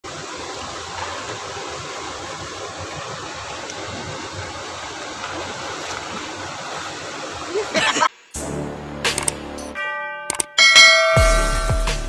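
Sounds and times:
river water rushing: 0.0s - 8.1s.

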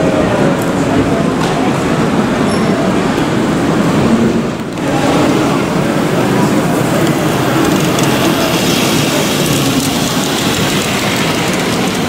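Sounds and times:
background hubbub: 0.0s - 12.0s
model train running on track: 2.9s - 12.0s.

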